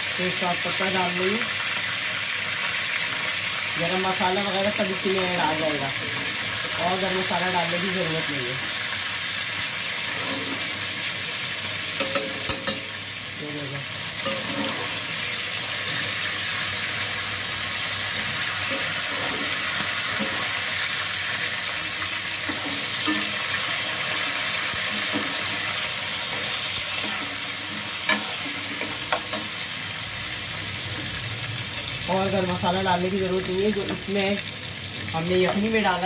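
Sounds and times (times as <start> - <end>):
onions sizzling in hot oil: 0.0 - 36.0
spoon clinking in metal pot: 12.0 - 12.9, 14.2 - 14.8, 22.5 - 23.4.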